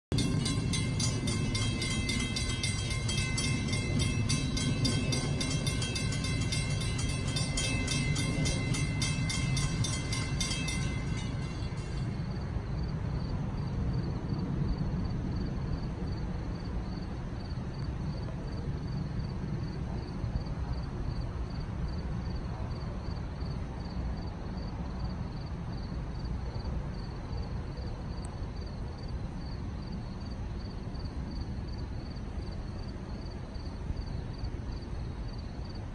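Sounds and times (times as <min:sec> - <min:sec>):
faint pulsing high tone: 0:00.1 - 0:13.0
crossing bell ringing rapidly: 0:00.1 - 0:13.2
low steady rumble: 0:00.1 - 0:17.5.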